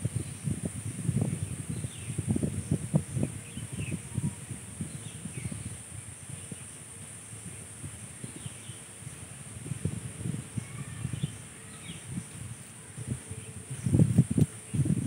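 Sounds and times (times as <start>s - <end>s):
wind buffeting microphone: 0.0s - 15.0s
high insect drone: 0.2s - 15.0s.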